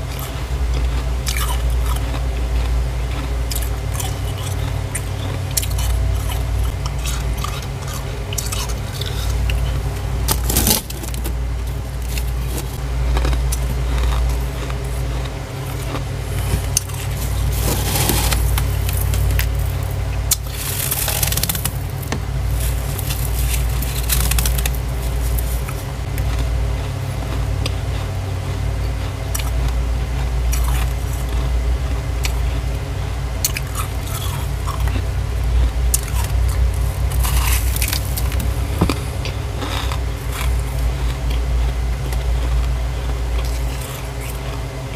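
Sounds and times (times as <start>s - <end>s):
steady low hum: 0.0s - 44.9s
gloved hand scraping frost: 9.0s - 12.8s, 15.7s - 26.0s.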